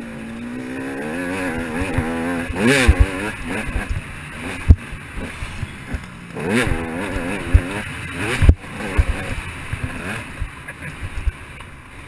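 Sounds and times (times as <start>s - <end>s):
dirt bike engine revving: 0.0s - 11.6s
sharp low thumps: 1.4s - 11.4s.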